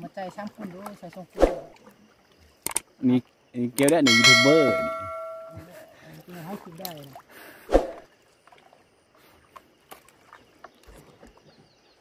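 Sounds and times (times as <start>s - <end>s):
water splashing: 4.0s - 11.5s.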